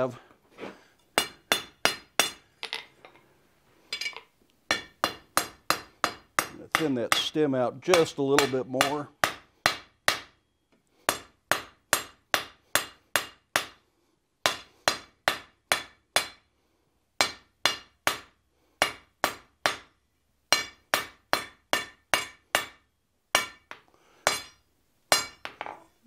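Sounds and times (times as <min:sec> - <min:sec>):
hammer striking steel on anvil: 0:01.2 - 0:02.8, 0:04.0 - 0:10.4, 0:11.1 - 0:13.8, 0:14.4 - 0:16.4, 0:17.2 - 0:19.9, 0:20.5 - 0:25.8.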